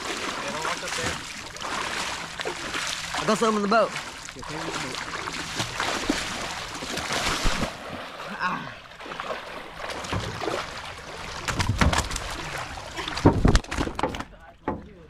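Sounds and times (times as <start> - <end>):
water splashing and sloshing: 0.0 - 15.0
knocks against boat hull: 13.2 - 14.9.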